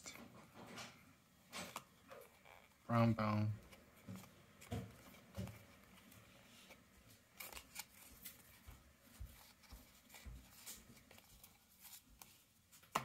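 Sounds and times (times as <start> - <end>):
trading cards flipping and tapping: 3.6 - 13.0.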